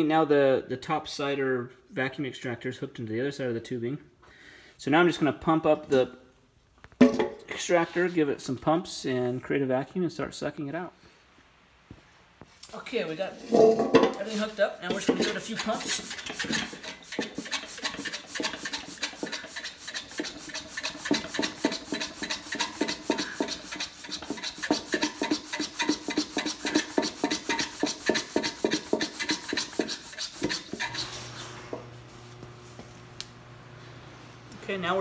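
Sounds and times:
hand vacuum pump strokes: 14.4 - 32.9.

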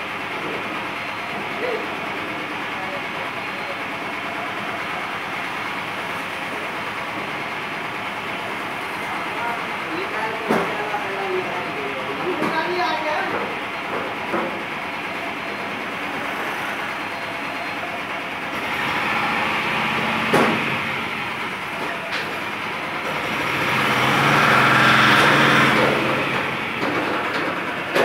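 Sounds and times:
pickup truck engine running: 13.5 - 28.0.

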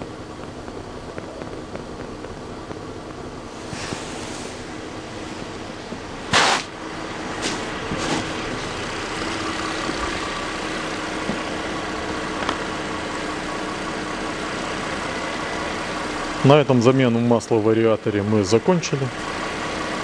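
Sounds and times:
car engine idling: 0.0 - 20.0
short loud burst of noise: 6.3 - 6.8.

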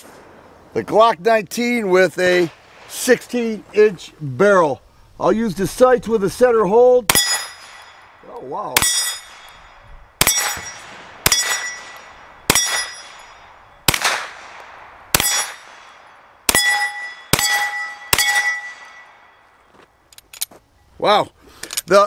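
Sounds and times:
pistol shots: 7.1 - 8.2, 8.8 - 19.4
steel plate target ringing: 7.1 - 14.0, 15.2 - 19.6.

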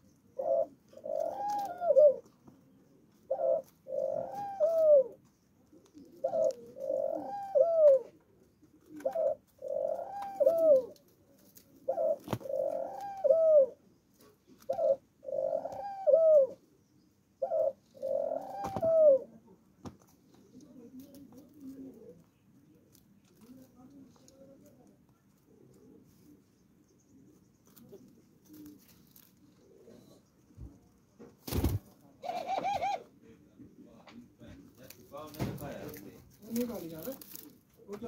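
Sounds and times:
dove cooing: 0.0 - 16.8, 17.4 - 19.4, 27.2 - 30.8, 32.2 - 33.2.

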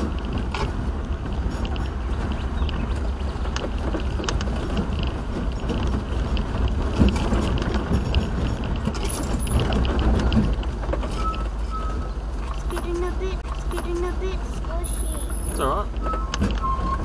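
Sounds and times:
small rattles and clicks: 0.0 - 11.6
road rumble in vehicle cabin: 0.0 - 17.0.

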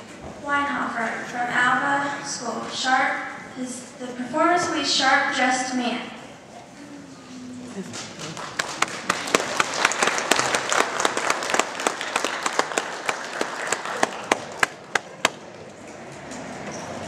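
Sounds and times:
audience applauding: 7.9 - 15.4.

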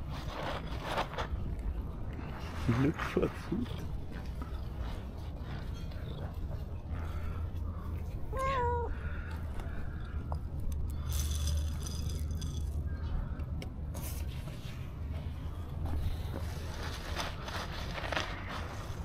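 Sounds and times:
rustling and handling noise: 0.0 - 8.2, 13.9 - 19.0
cat meowing: 8.3 - 9.1.

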